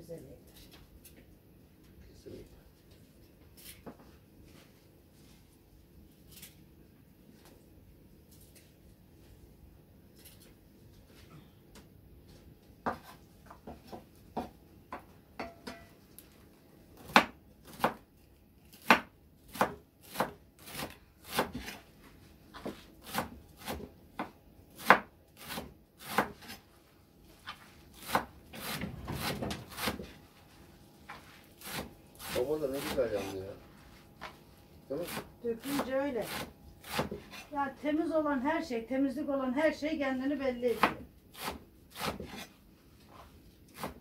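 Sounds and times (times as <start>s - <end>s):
knife chopping on wooden board: 12.8s - 15.8s, 17.0s - 18.0s, 18.7s - 21.8s, 22.6s - 26.6s, 28.0s - 30.1s, 31.6s - 33.0s, 35.0s - 37.5s, 40.8s - 42.5s, 43.7s - 44.0s
knife scraping board: 36.2s - 37.6s, 41.4s - 42.5s.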